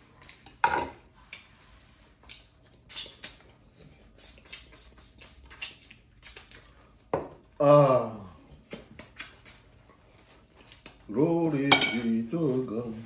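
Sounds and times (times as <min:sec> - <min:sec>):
wet chewing and smacking: 0:02.1 - 0:07.6, 0:08.4 - 0:11.1.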